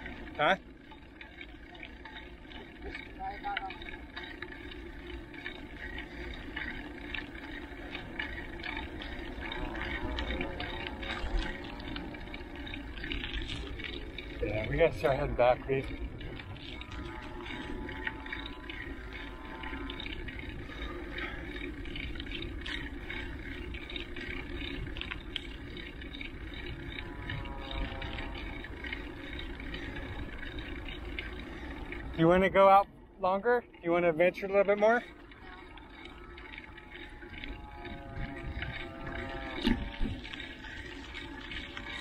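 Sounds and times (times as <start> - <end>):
bike tyres rolling on asphalt: 0.0 - 42.0
small ticks and rattles: 0.0 - 42.0
wind across microphone: 37.6 - 42.0.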